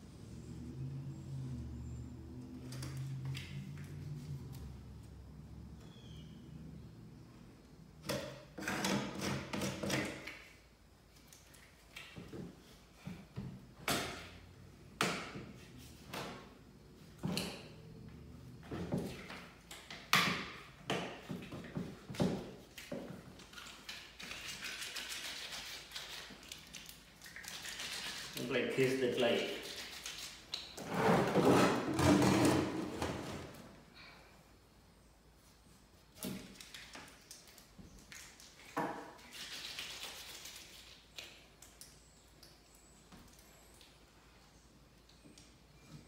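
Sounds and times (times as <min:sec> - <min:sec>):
putty knife knocking and scraping: 0:08.1 - 0:10.3.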